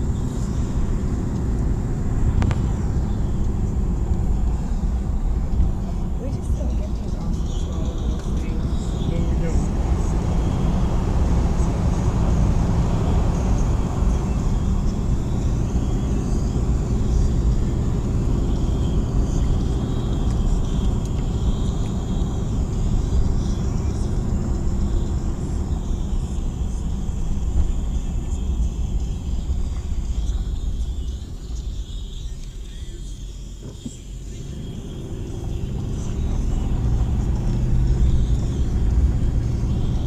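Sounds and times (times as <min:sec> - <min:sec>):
car engine and tyre rumble: 0:00.0 - 0:40.0.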